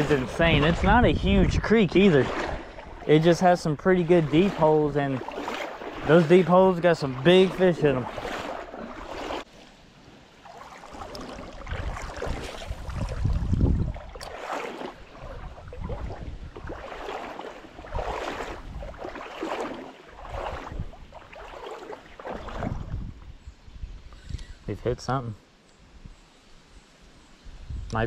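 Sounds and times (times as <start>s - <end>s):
wind rumbling on microphone: 0.0s - 6.3s, 10.9s - 24.8s, 27.4s - 28.0s
water sloshing and splashing: 0.0s - 23.3s.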